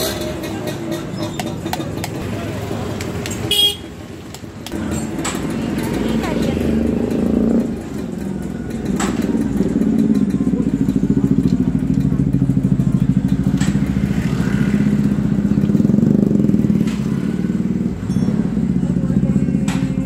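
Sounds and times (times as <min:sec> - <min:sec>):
motorcycle engine idling: 0:04.7 - 0:16.8, 0:17.5 - 0:20.0.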